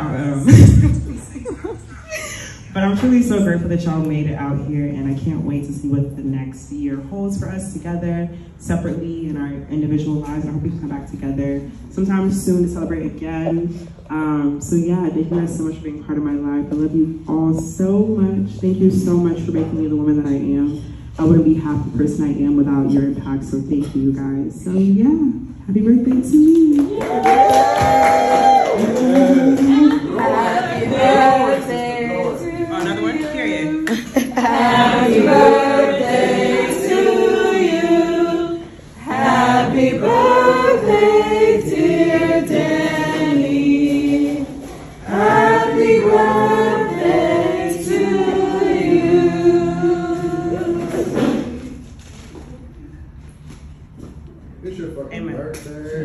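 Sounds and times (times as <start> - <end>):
voices singing together: 28.4 - 51.8.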